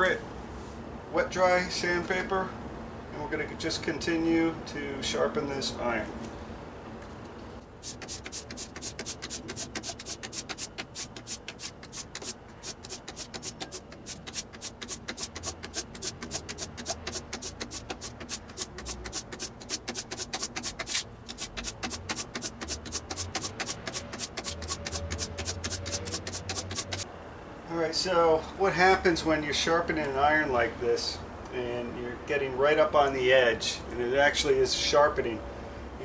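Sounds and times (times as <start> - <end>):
blade rasping on sandpaper: 7.8 - 27.0.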